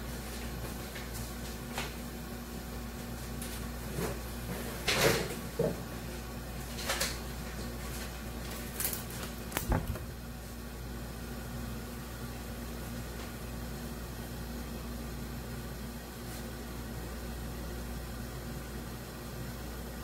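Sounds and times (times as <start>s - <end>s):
steady low hum: 0.0s - 20.0s
dull thump: 9.6s - 10.2s.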